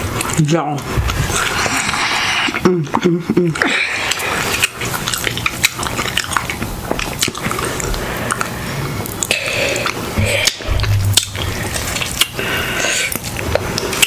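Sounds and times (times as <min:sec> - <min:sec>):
biting and chewing: 0:03.6 - 0:14.0.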